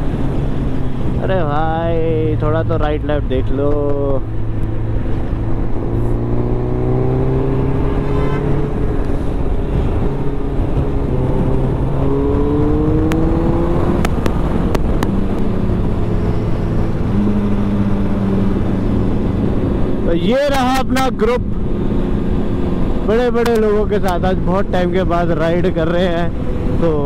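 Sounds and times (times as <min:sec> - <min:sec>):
motorcycle engine accelerating: 0:00.0 - 0:20.1
wind rushing: 0:04.2 - 0:20.1.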